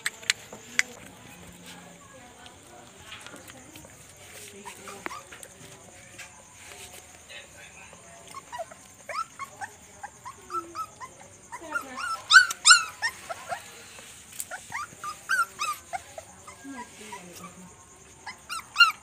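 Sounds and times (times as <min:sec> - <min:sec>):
puppies whining and yelping: 0:08.2 - 0:19.0.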